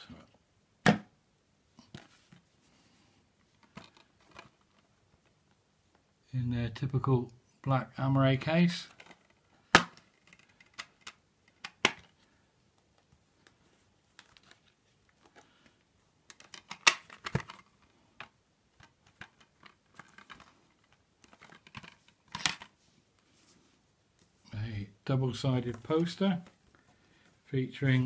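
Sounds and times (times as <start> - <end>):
plastic case clicking and clacking: 3.6 - 5.3, 8.9 - 12.2, 16.3 - 22.7.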